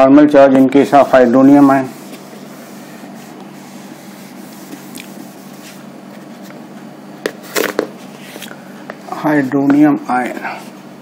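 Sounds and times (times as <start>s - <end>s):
duster rubbing on whiteboard: 0.8s - 6.5s.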